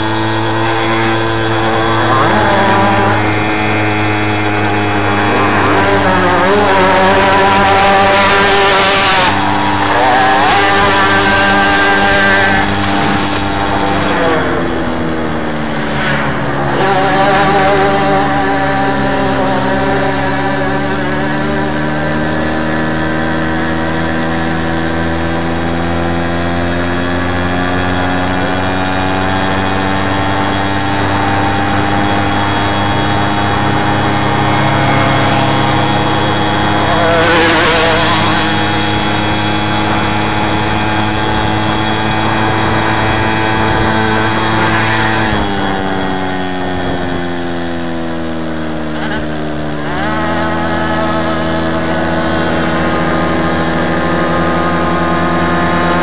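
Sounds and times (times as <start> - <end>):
loud rush of noise: 0.0 - 18.4
moped engine running: 0.0 - 56.0.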